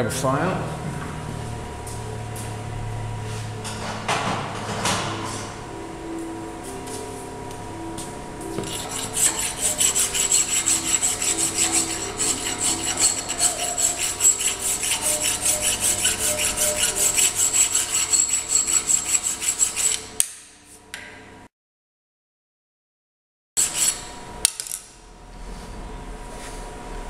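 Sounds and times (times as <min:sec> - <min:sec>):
hand file rasping on steel: 0:08.6 - 0:20.1, 0:23.6 - 0:24.0.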